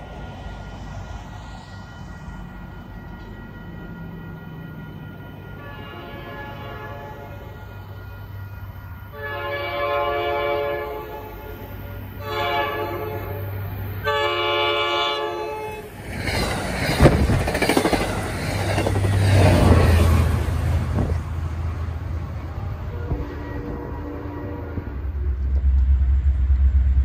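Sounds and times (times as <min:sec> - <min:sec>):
locomotive engine drone: 0:00.0 - 0:27.0
train horn blasts: 0:05.5 - 0:08.2, 0:09.0 - 0:15.9, 0:22.8 - 0:25.5
train wheel clatter: 0:16.0 - 0:20.3.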